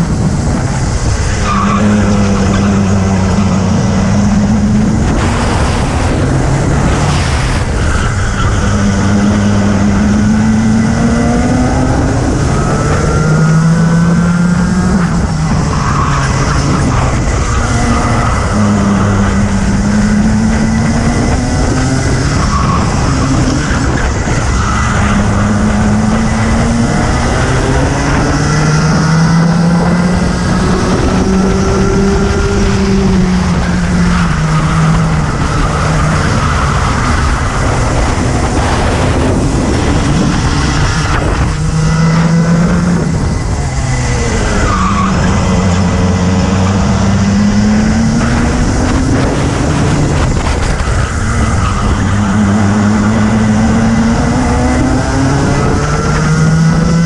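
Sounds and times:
racing kart engine: 0.0s - 57.0s.

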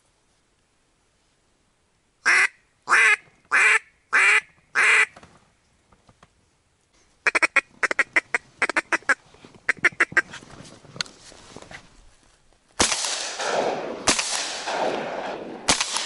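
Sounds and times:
duck quacking: 2.2s - 5.2s, 7.2s - 10.3s.

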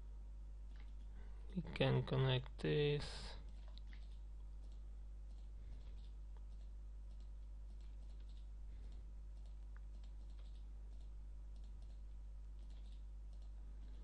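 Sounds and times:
low electrical hum: 0.0s - 14.0s
computer mouse clicks: 3.5s - 12.0s, 12.6s - 14.0s.

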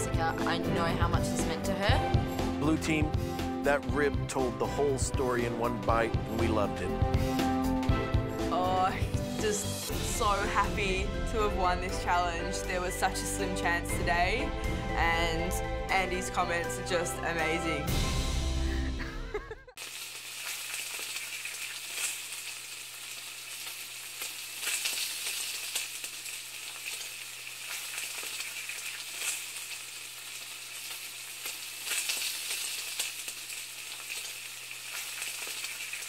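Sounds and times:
food sizzling and popping: 0.0s - 3.0s, 19.3s - 36.0s.

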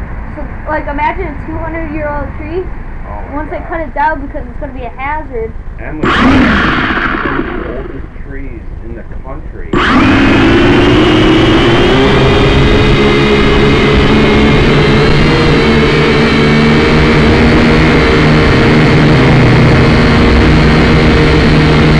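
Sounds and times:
drone motors whirring: 5.8s - 8.8s, 9.6s - 21.9s.

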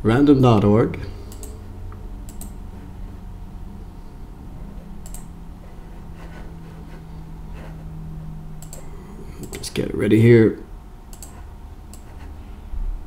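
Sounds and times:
steady low hum: 0.0s - 13.0s
faint clicks: 1.3s - 1.6s, 2.2s - 2.6s, 5.0s - 5.3s, 8.6s - 9.6s, 11.1s - 12.2s.

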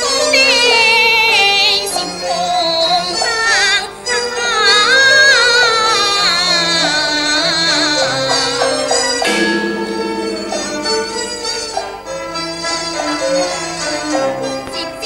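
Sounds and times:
woman singing opera: 0.0s - 9.0s
traditional instrumental accompaniment: 0.0s - 15.0s.

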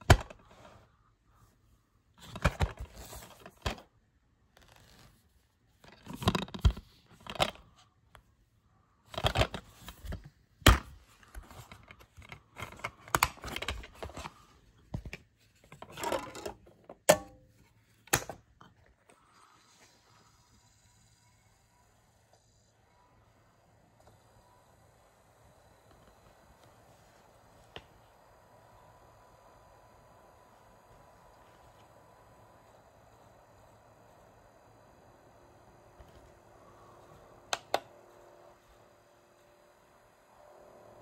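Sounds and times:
plastic dvd case clicks and rustles: 2.2s - 3.9s, 5.8s - 7.7s, 9.1s - 17.3s, 37.3s - 38.4s.

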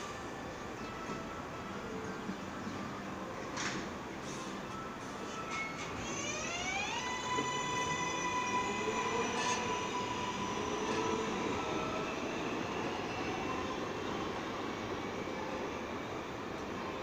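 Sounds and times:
train wheels on rails: 3.5s - 17.0s
train propulsion whine: 4.1s - 17.0s.

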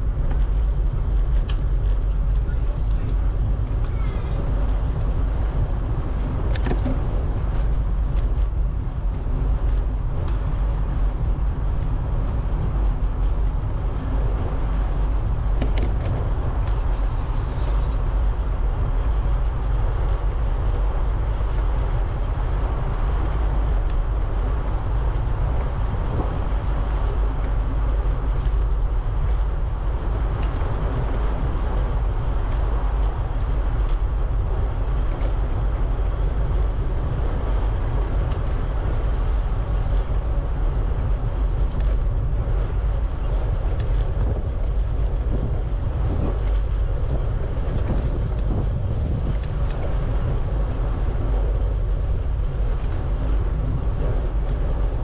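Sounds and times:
bicycle tyres rolling: 0.0s - 55.0s
wind rumble on microphone: 0.0s - 55.0s.

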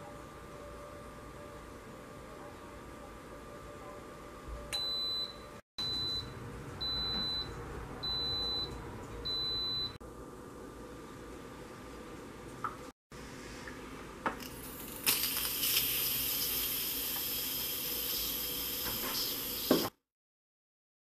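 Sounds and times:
pressure cooker beeping: 4.7s - 10.0s.

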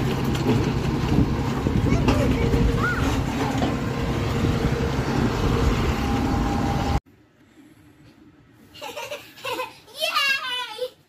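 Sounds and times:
tractor engine rumbling: 0.0s - 7.0s
child laughing and squealing: 1.9s - 3.3s, 8.8s - 10.9s.

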